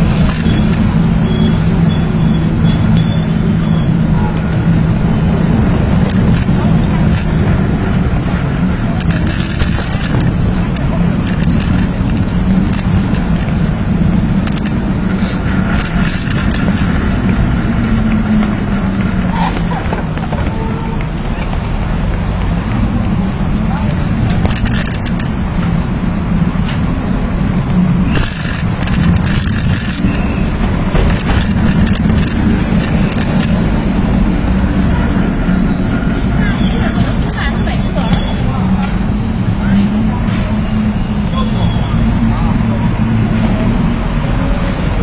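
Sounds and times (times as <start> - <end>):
bicycle clicks and rattles: 0.0 - 0.8, 6.0 - 7.4, 9.0 - 13.7, 14.4 - 14.9, 15.6 - 17.0, 24.3 - 25.4, 28.1 - 30.3, 31.0 - 33.8
city street traffic rumble: 0.0 - 45.0.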